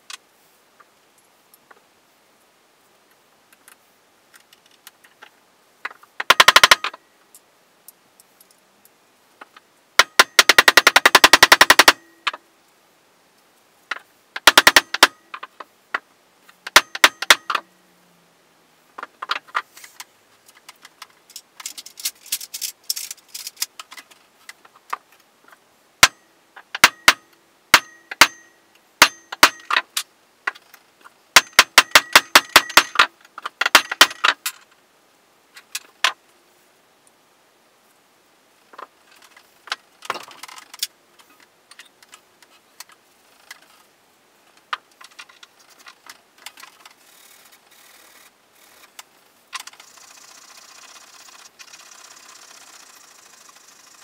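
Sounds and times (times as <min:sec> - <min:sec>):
hammer tapping steel pin: 0:14.4 - 0:15.4, 0:16.7 - 0:17.6, 0:26.8 - 0:29.8, 0:31.4 - 0:34.4.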